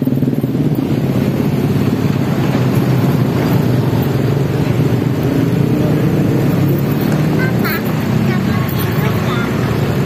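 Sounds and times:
cars and motorcycles driving past: 0.0 - 10.0.

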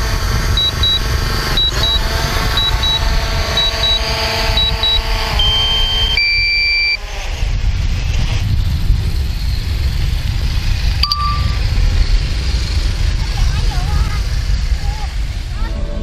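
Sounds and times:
drone propellers whining: 0.0 - 16.0
wind on microphone: 0.0 - 16.0
held electronic tone: 0.5 - 7.0, 11.0 - 11.6
short high beeps: 0.6 - 1.0, 1.6 - 2.0, 2.6 - 3.0, 3.6 - 7.0, 11.0 - 11.6
two-note tone: 11.0 - 11.6.

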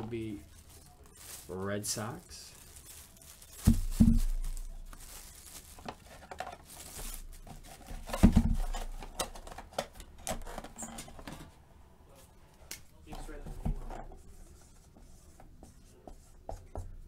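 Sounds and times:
plastic wrapping crinkling and tearing: 0.0 - 9.6.

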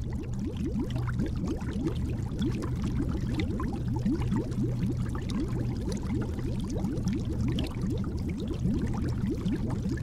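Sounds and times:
underwater bubbling: 0.0 - 10.0.

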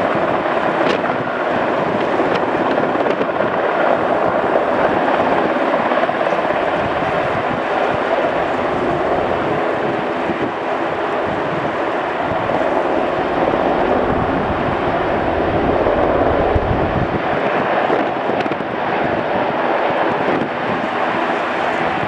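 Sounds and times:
helicopter hovering: 0.0 - 22.0
wind noise on microphone: 0.0 - 22.0.

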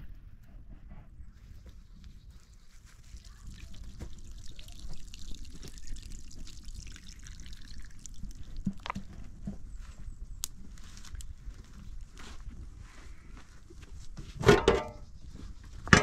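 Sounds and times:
liquid pouring in a thin stream: 2.3 - 9.4.

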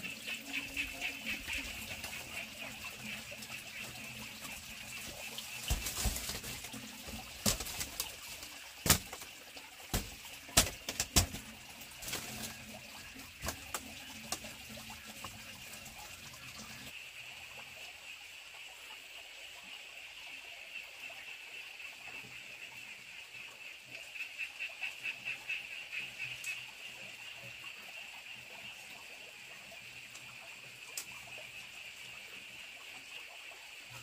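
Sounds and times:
bamboo knocking and clacking: 5.6 - 9.3, 9.9 - 12.5, 13.4 - 14.6.

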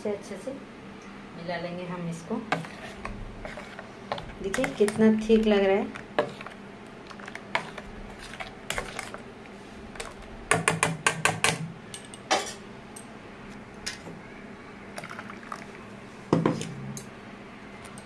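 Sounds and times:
utensils clicking against steel bowl: 4.1 - 7.8.

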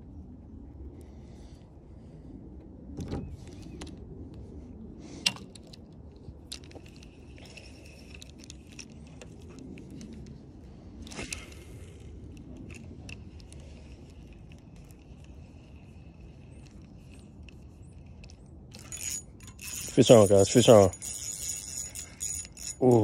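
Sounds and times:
fishing reel metallic clicks: 18.2 - 23.0.

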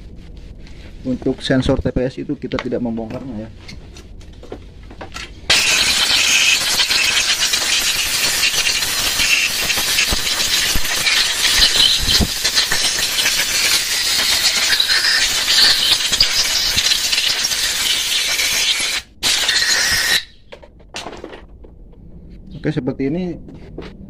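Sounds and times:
pressurised spray hissing: 5.5 - 20.4.

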